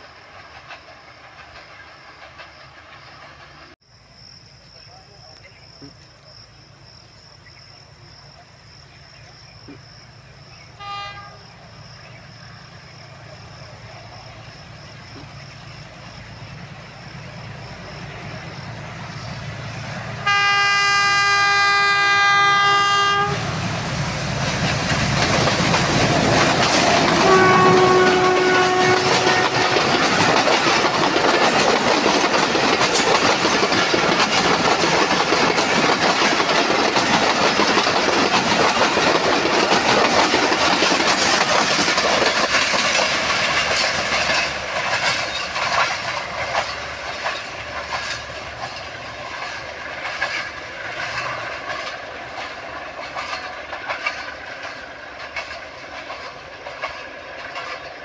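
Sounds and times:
train wheels clickety-clack: 0.0 - 3.8, 12.0 - 58.0
locomotive horn: 10.8 - 11.5, 20.2 - 23.6, 27.0 - 30.2.

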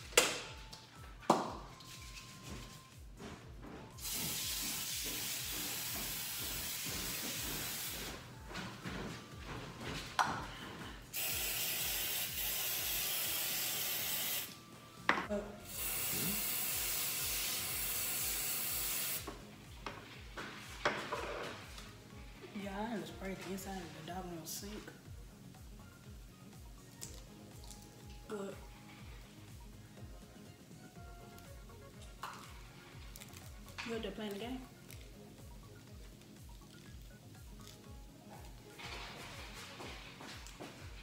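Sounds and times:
aerosol spray hissing: 4.0 - 8.2, 11.1 - 14.6, 15.7 - 19.3.

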